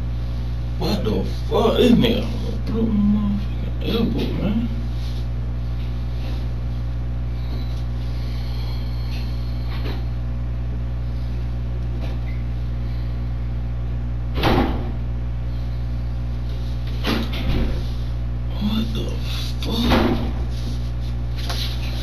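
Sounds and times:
low electrical hum: 0:00.0 - 0:22.0
loud thump: 0:14.4 - 0:14.9.

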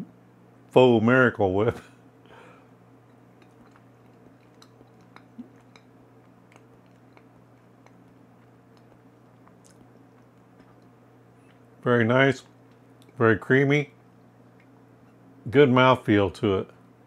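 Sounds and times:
low hum: 0:00.0 - 0:17.0
lip smacks and tongue clicks: 0:03.0 - 0:11.6, 0:14.1 - 0:14.8.

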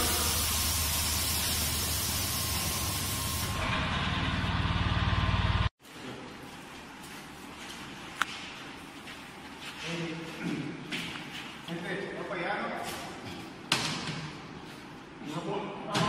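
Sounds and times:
machine humming and hissing: 0:00.0 - 0:05.6
factory room tone: 0:00.0 - 0:16.0.

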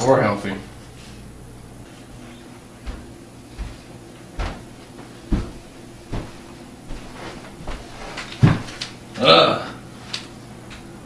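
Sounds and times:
heavy footsteps: 0:00.8 - 0:08.8.

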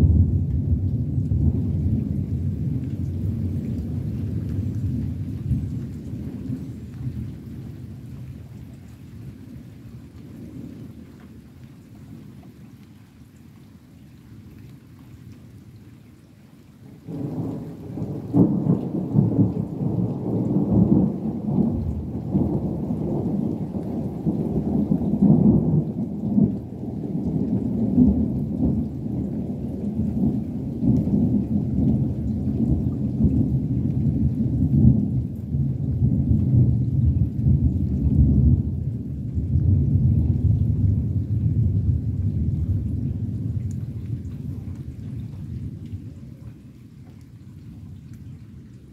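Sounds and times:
thunder rumbling: 0:00.0 - 0:11.5, 0:17.1 - 0:46.4.

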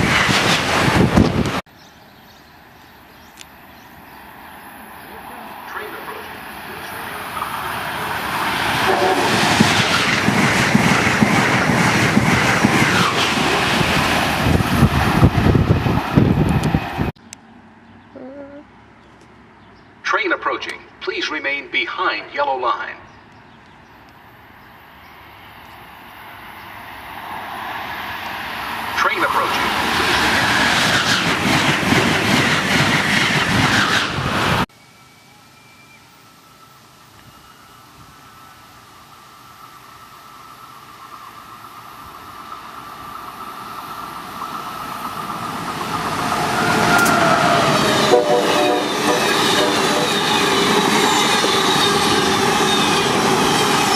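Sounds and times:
rapid clicking of train cars: 0:00.0 - 0:01.6, 0:07.3 - 0:17.1, 0:29.0 - 0:34.6, 0:42.4 - 0:53.9
high-speed train passing: 0:00.0 - 0:01.7, 0:02.3 - 0:17.8, 0:20.0 - 0:53.9
wheels clattering over rails: 0:08.5 - 0:14.2.

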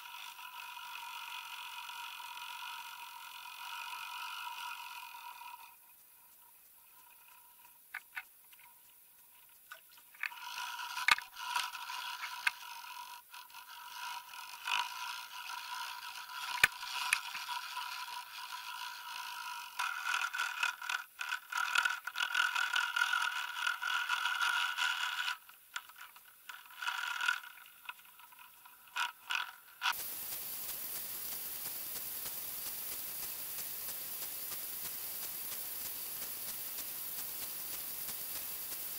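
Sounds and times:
steady hiss: 0:00.0 - 0:19.8, 0:29.8 - 0:38.9
camera scraping and rattling underwater: 0:04.0 - 0:32.6.

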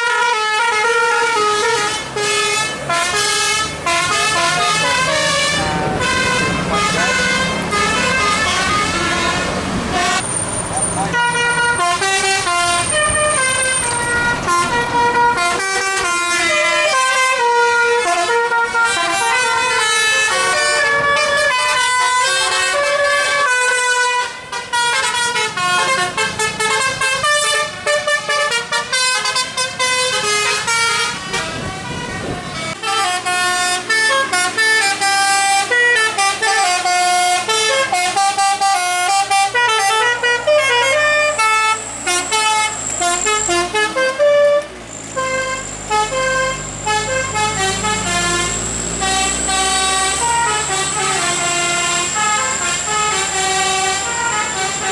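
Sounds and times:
musical air horns playing melody: 0:00.0 - 0:10.4, 0:11.0 - 0:54.9.

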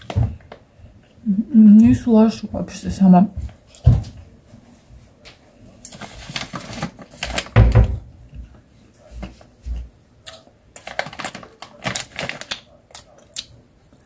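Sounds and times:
plastic snack packet crinkling: 0:05.8 - 0:07.9, 0:10.3 - 0:13.5.

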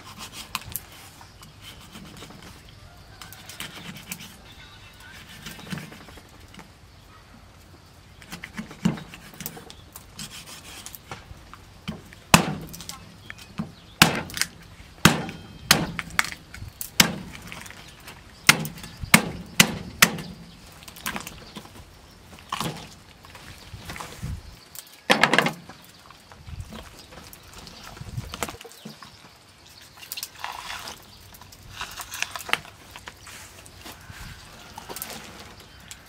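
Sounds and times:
cleaver chopping through bone: 0:12.3 - 0:13.0, 0:14.0 - 0:16.4, 0:17.0 - 0:17.6, 0:18.4 - 0:20.4.

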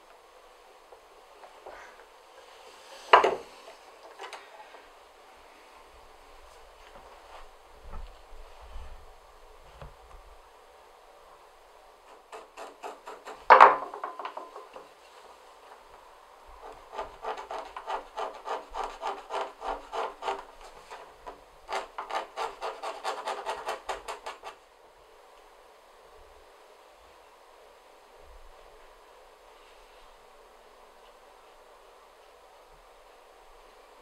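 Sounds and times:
tool rubbing leather edge: 0:12.1 - 0:13.5, 0:16.6 - 0:24.6.

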